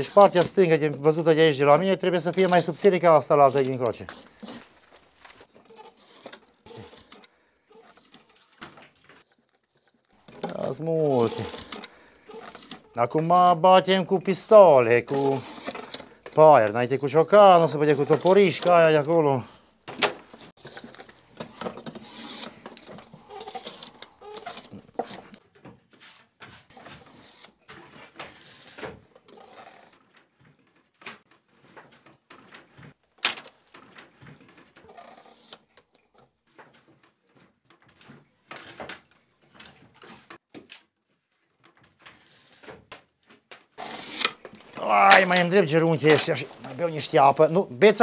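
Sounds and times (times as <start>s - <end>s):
draw knife scraping wood: 2.2s - 13.0s, 15.1s - 16.4s, 17.6s - 18.8s, 20.0s - 30.0s, 43.8s - 45.4s.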